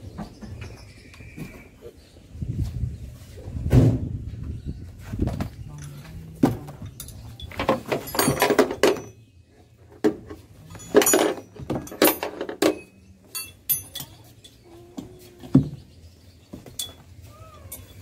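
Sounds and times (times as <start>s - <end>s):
metal buckles clinking and rattling: 6.7s - 9.3s, 10.0s - 15.2s, 16.6s - 18.0s.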